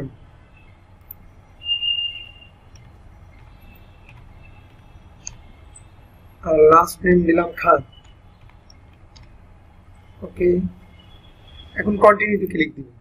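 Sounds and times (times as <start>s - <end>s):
low steady hum: 0.0s - 13.0s
keyboard typing: 2.0s - 6.0s, 7.9s - 9.5s.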